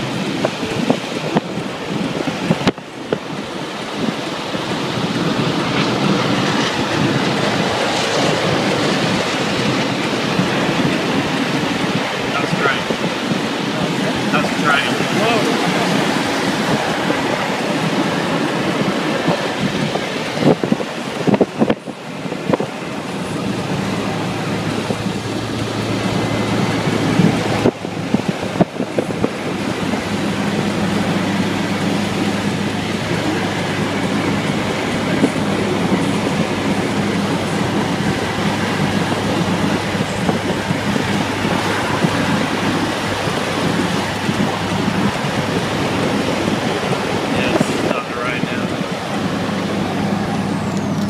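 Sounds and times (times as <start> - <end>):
car cabin road drone: 0.0 - 51.0.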